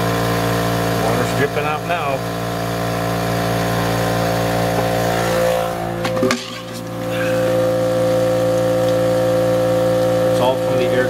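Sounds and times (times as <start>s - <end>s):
mechanical hum: 0.0s - 11.0s
higher steady tone: 4.0s - 8.6s.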